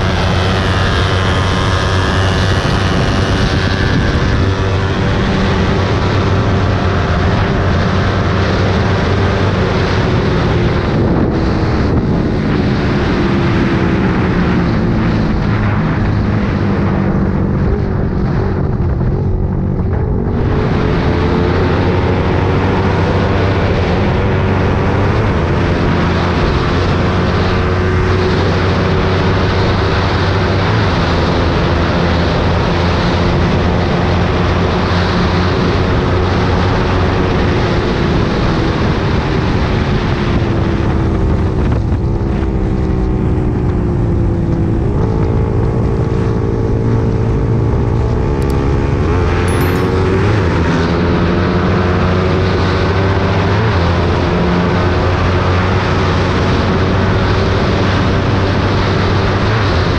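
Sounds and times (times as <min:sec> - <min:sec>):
wind rush: 0:00.0 - 0:23.2
motorcycle engine cruising: 0:00.0 - 0:59.9.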